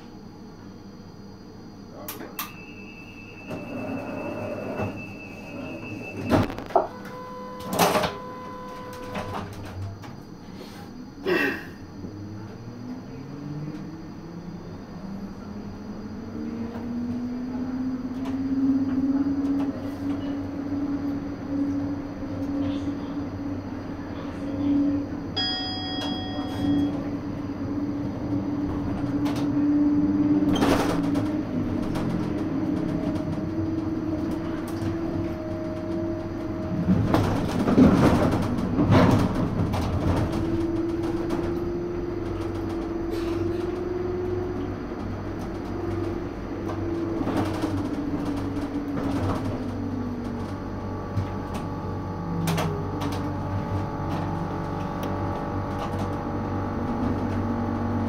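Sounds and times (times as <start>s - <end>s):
tram motor whine: 0.0s - 58.0s
wheels clicking over rail joints: 30.4s - 51.7s.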